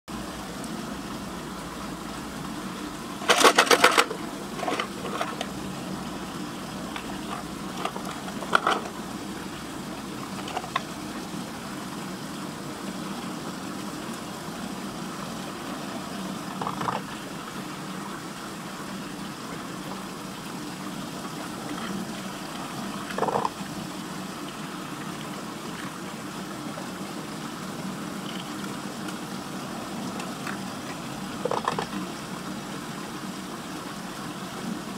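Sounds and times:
water swirling down a drain: 0.3s - 34.9s
knocks and splashes: 3.2s - 5.6s, 6.9s - 9.0s, 16.5s - 17.1s, 31.4s - 32.0s.

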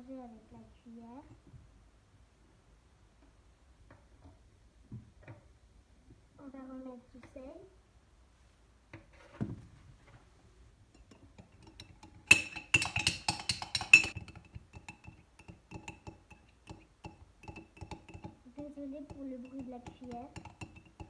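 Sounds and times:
metal spoon clinking in mug: 10.9s - 21.0s.

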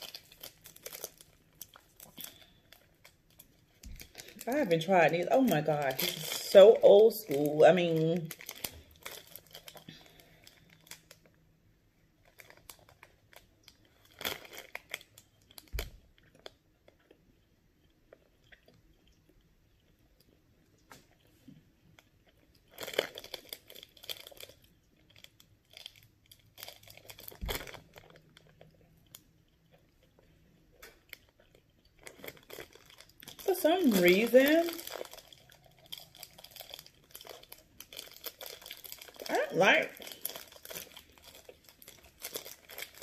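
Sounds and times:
plastic wrapper crinkling: 0.0s - 11.5s, 12.1s - 17.2s, 22.0s - 43.0s
quiet chewing: 12.2s - 33.5s.

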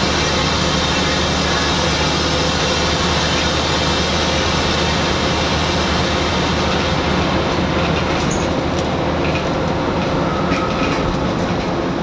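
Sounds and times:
bus engine drone: 0.0s - 12.0s
road noise: 0.0s - 12.0s.

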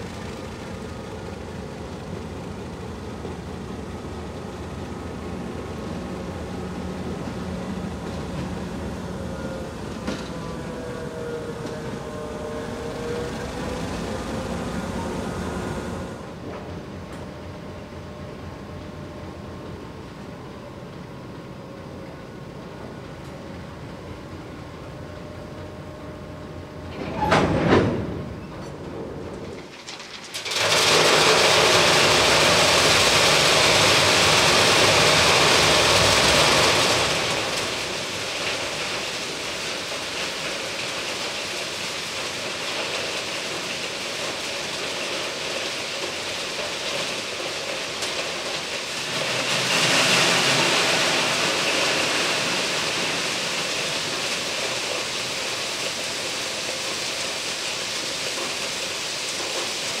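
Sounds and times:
gravel pouring down a chute: 0.0s - 16.3s, 29.5s - 60.0s.

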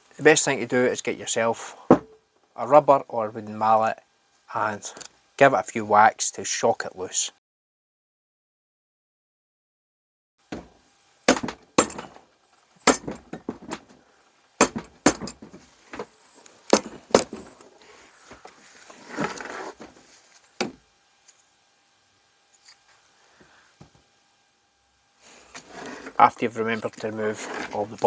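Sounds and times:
scraping rustle: 15.4s - 20.6s, 25.3s - 28.0s.

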